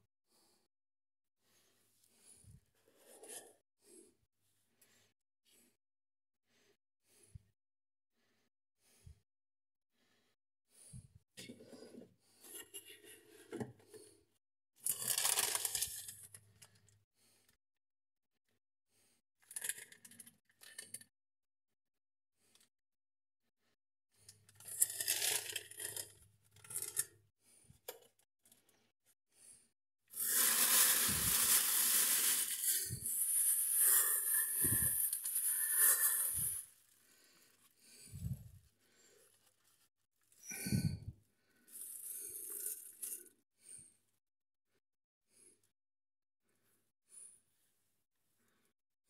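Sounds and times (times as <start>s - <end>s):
plastic packaging crinkling: 14.9s - 16.0s, 30.2s - 36.6s
plastic bag rustling: 30.2s - 36.6s.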